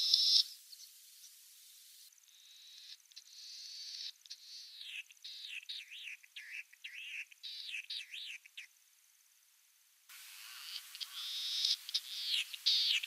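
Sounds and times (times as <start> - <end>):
snipe singing harsh rasping notes: 10.2 - 13.0.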